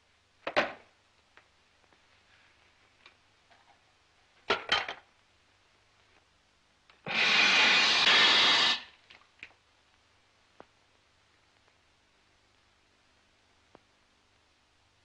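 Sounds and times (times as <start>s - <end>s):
loud rushing hiss: 7.0s - 9.0s.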